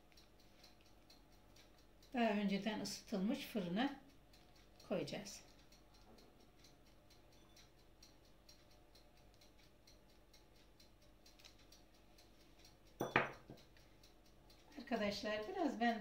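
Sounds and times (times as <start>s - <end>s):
faint regular ticking: 0.0s - 16.0s.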